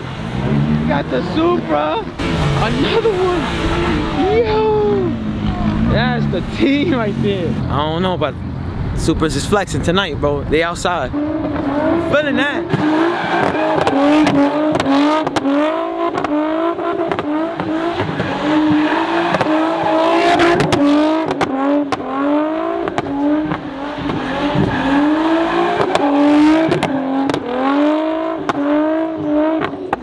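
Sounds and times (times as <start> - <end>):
car engine revving: 0.0 - 30.0
tyres squealing: 11.9 - 14.9, 17.6 - 20.9, 23.6 - 27.1.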